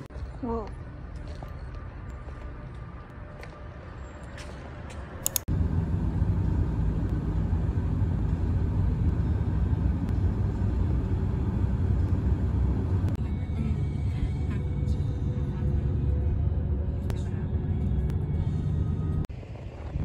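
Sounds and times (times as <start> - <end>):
car cabin road noise: 4.3 - 20.0
sharp clicks: 5.2 - 5.5.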